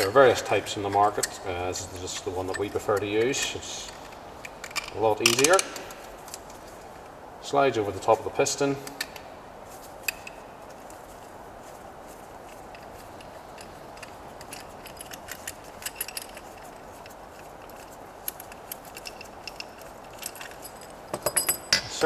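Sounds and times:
metal parts clicking: 0:00.0 - 0:06.6, 0:12.5 - 0:21.9
low room hiss: 0:00.0 - 0:22.0.

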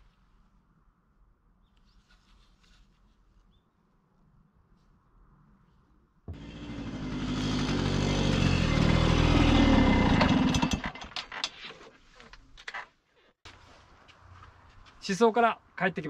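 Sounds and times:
two-stroke engine revving: 0:06.3 - 0:11.0.

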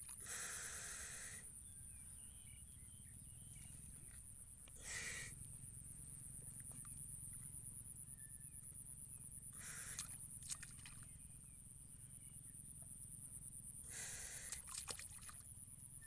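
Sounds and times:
water splash: 0:14.5 - 0:15.4.

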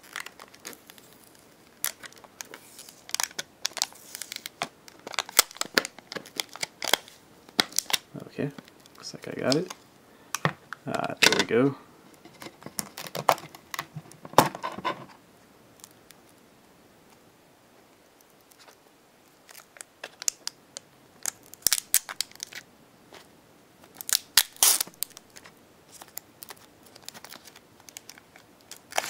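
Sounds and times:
plastic packaging crinkling: 0:00.0 - 0:09.8, 0:12.3 - 0:14.6, 0:18.5 - 0:20.6, 0:21.2 - 0:22.6, 0:23.9 - 0:29.0.

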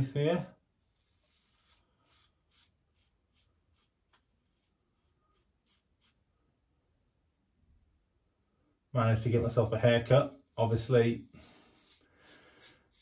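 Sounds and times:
razor scraping stubble: 0:01.1 - 0:04.2, 0:09.8 - 0:13.0.

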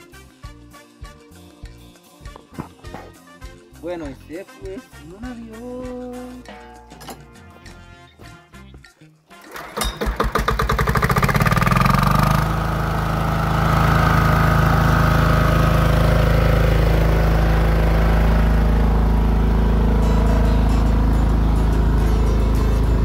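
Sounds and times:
generator engine starting and running: 0:09.3 - 0:23.0.

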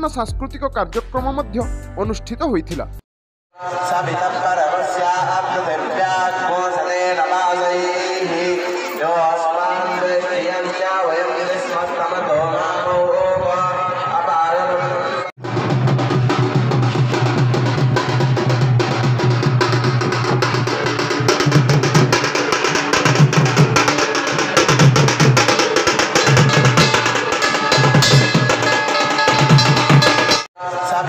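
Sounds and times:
hand drums beaten fast: 0:15.4 - 0:30.5.

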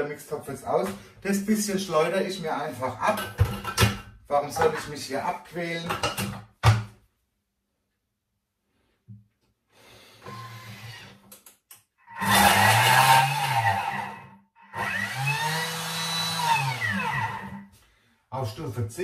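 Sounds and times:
mixer motor whining: 0:12.1 - 0:17.6.

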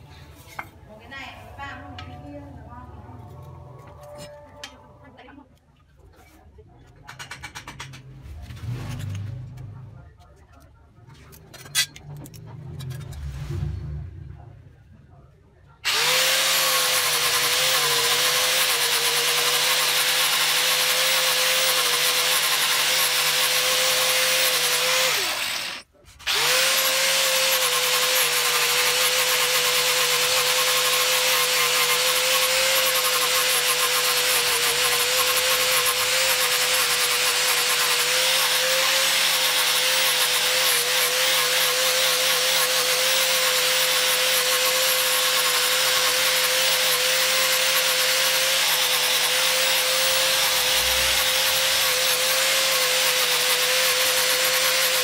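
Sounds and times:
angle grinder sanding wood: 0:15.9 - 0:55.0.

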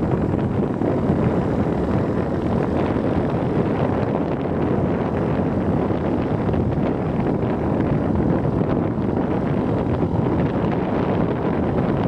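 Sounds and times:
wind buffeting the microphone: 0:00.0 - 0:12.0.

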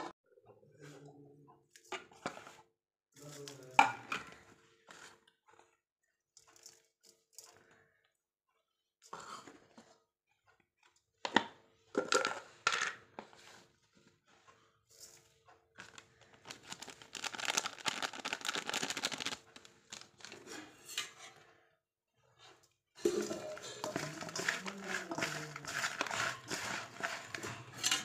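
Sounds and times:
plastic packet crinkling: 0:15.8 - 0:20.5, 0:23.0 - 0:27.8
steel bowls knocking together: 0:23.0 - 0:28.0.

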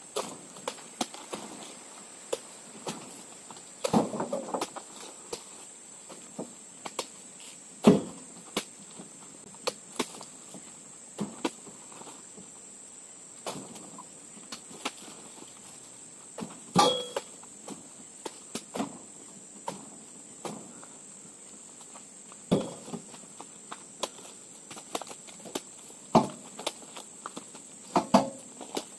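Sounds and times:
fruit bunches thudding into truck bed: 0:03.8 - 0:05.4, 0:07.8 - 0:08.7, 0:13.4 - 0:14.0, 0:18.6 - 0:20.8, 0:22.5 - 0:23.2, 0:25.4 - 0:26.6, 0:27.9 - 0:28.9
brief metallic ring: 0:16.8 - 0:17.3.

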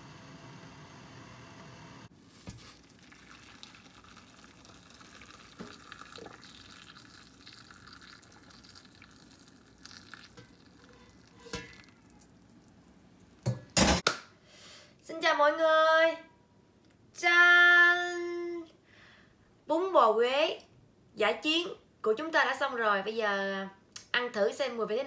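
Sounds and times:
broth pouring from metal pot: 0:02.4 - 0:13.4.

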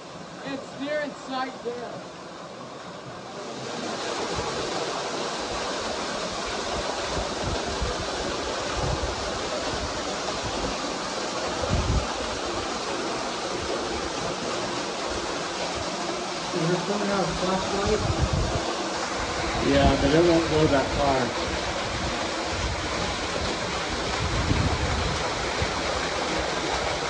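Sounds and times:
waterfall splashing into a pool: 0:00.0 - 0:27.0.

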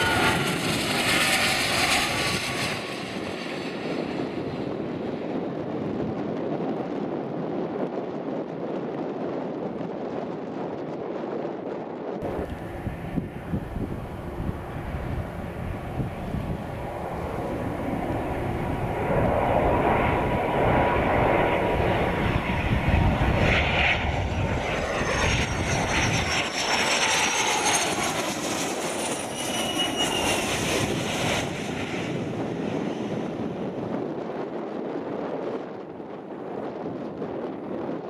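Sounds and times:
high jet whine falling in pitch: 0:00.0 - 0:05.0, 0:12.2 - 0:34.2
jet engine passing overhead: 0:00.0 - 0:38.0.

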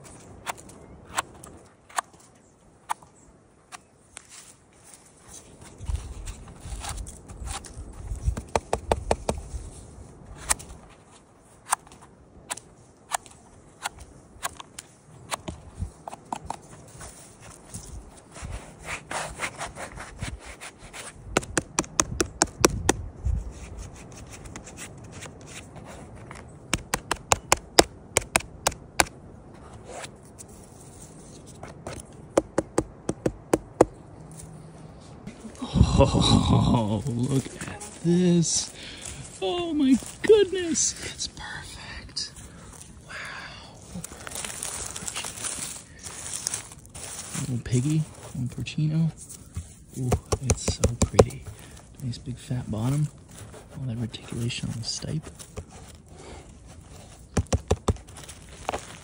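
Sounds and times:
rustling handling noise: 0:04.0 - 0:22.3, 0:36.7 - 0:43.1, 0:43.7 - 0:59.0
sharp scratching clicks: 0:26.7 - 0:29.1.

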